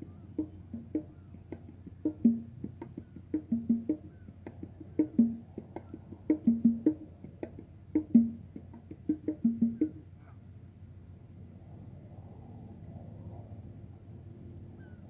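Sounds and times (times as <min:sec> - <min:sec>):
wood-block knocks music: 0:00.0 - 0:10.0.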